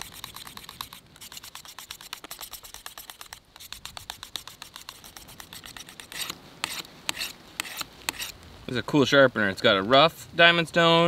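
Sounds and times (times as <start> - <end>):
knife scraping on sharpener: 0.0 - 8.4.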